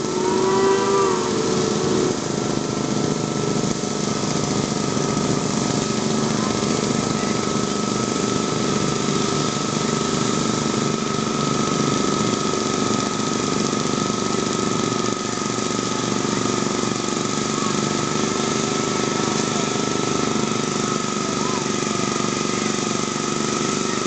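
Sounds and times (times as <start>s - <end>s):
high whine: 0.0s - 16.6s
tractor engine under load: 0.0s - 24.0s.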